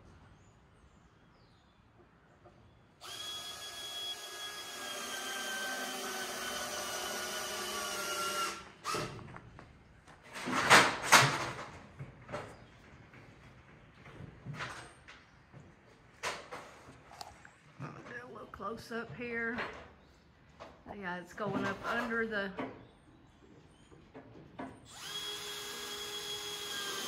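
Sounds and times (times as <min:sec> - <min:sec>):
power drill running: 0:03.0 - 0:09.2, 0:24.9 - 0:27.0.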